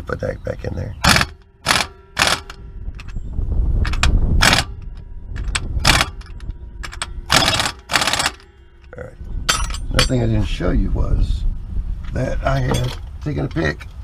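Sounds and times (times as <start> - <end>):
low rumble: 1.0 - 14.0
metal socket clinks and scrapes: 1.1 - 10.2.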